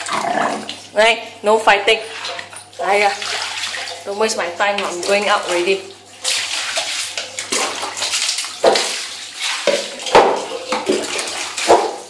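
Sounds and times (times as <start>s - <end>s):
water splashing on tiled floor: 2.1s - 12.0s
sharp splashes or knocks: 5.0s - 12.0s.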